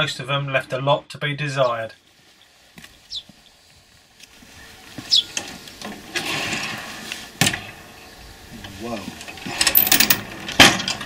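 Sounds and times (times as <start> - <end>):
footsteps on dry ground: 2.0 - 5.8
bird chirps: 3.0 - 3.6, 4.6 - 5.5.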